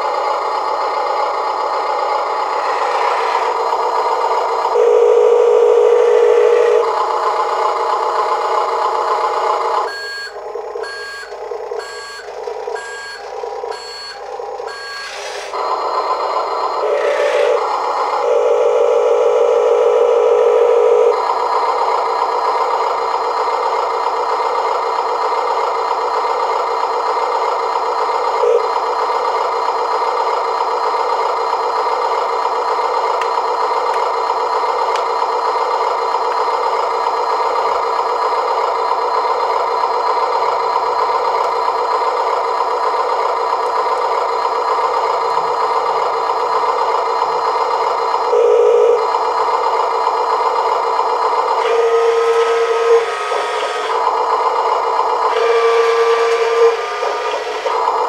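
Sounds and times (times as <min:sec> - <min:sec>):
simulated diesel engine drone: 0:00.0 - 0:58.0
electronic tone: 0:04.7 - 0:06.9, 0:09.9 - 0:21.2, 0:28.4 - 0:28.7, 0:48.3 - 0:49.1, 0:55.3 - 0:57.8.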